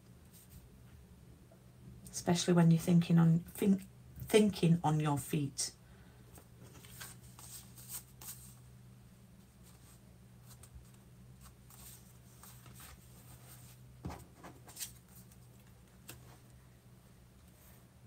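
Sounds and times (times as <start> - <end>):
low steady hum: 0.0 - 18.0
paper rustling and scraping: 6.6 - 8.6, 9.5 - 16.4.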